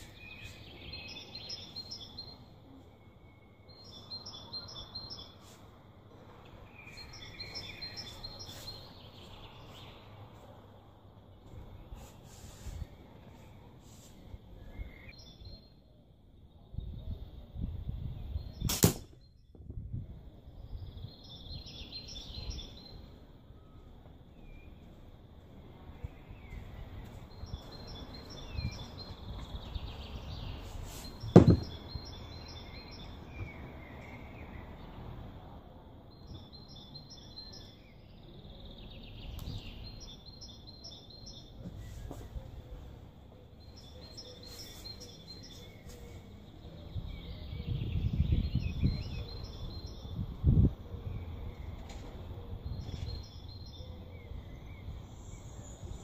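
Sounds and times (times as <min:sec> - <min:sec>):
small birds chirping: 0:00.0 - 0:34.9, 0:36.1 - 0:56.0
sharp snap: 0:18.6 - 0:19.3
dull thump: 0:31.2 - 0:31.8.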